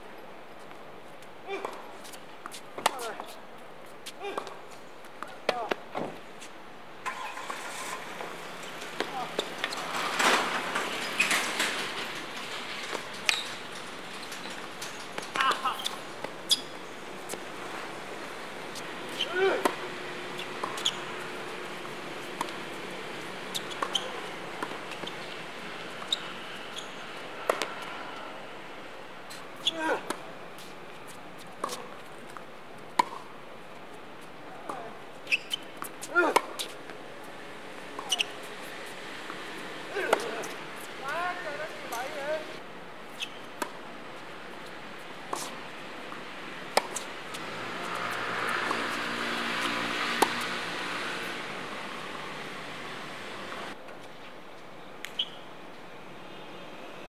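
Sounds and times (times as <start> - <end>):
tennis ball hit and bouncing: 2.5 - 3.4, 5.2 - 6.2, 19.1 - 25.3, 26.8 - 27.9, 31.6 - 32.0, 32.9 - 33.3, 34.6 - 36.8, 37.9 - 38.3, 39.3 - 42.4, 43.2 - 43.8, 45.3 - 53.8.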